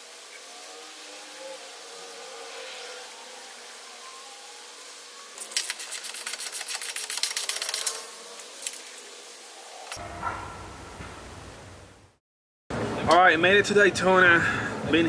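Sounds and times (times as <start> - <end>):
ratchet wrench clicking: 5.4 - 8.0.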